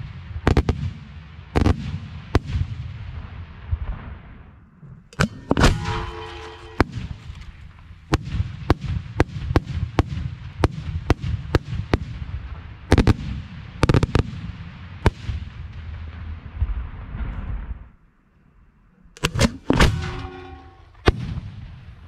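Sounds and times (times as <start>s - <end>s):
fireworks bangs: 0.0s - 18.0s, 19.1s - 22.0s
low rumble: 15.4s - 22.0s.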